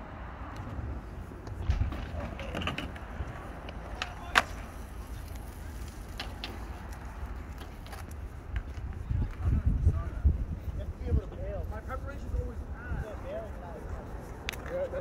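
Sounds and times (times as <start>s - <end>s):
distant traffic rumble: 0.0s - 15.0s.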